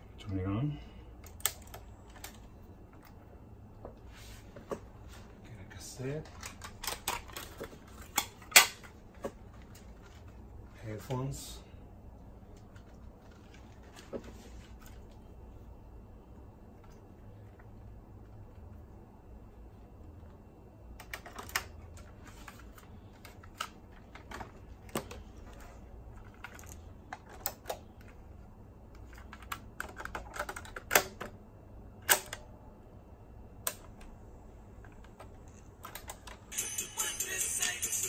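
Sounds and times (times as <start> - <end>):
music from cassette player: 36.5 - 38.0.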